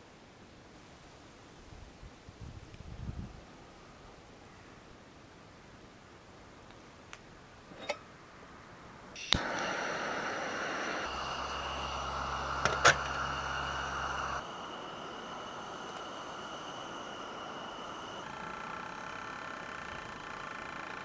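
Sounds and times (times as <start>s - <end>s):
igniter click: 9.2s - 18.3s
gas burner hissing: 9.2s - 21.0s.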